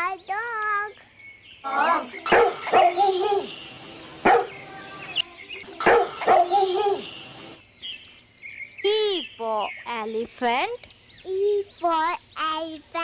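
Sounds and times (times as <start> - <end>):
puppy yapping: 2.3 - 3.6, 4.2 - 4.7, 5.8 - 7.1.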